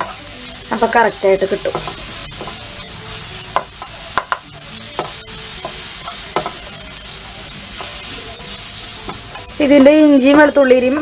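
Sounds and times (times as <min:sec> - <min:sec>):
food sizzling in oil: 0:00.0 - 0:11.0
spatula tapping and scraping pan: 0:01.6 - 0:02.7, 0:03.5 - 0:06.9, 0:07.7 - 0:10.5.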